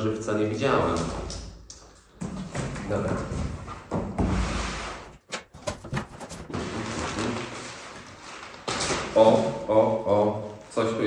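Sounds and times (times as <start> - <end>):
packing paper rustling: 5.2 - 9.4
cardboard flaps knocking and ripping: 5.3 - 7.6.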